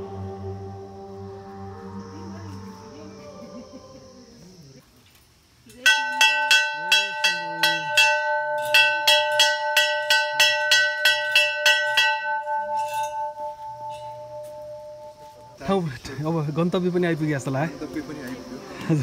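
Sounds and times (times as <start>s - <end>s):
brass bell ringing: 5.8s - 15.8s.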